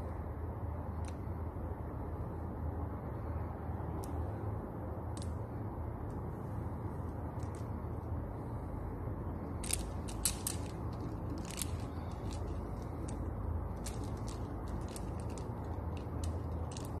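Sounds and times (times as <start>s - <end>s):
steady low rumble: 0.0s - 17.0s
prayer beads clicking: 7.0s - 8.2s, 9.4s - 17.0s.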